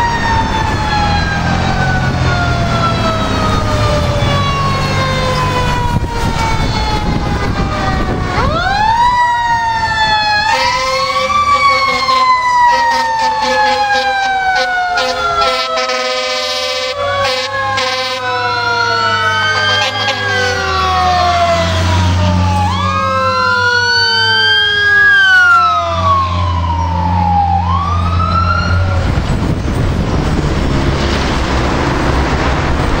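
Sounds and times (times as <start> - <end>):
fire truck sirens wailing: 0.0 - 33.0
road noise: 0.0 - 33.0
truck engine rumble: 0.0 - 33.0
horn blast: 10.4 - 18.4, 19.5 - 20.6.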